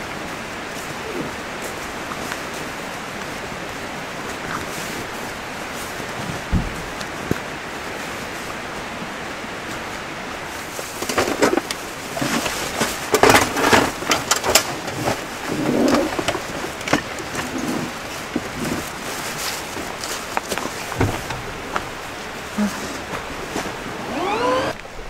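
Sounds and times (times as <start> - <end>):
cases knocking: 20.9 - 21.9.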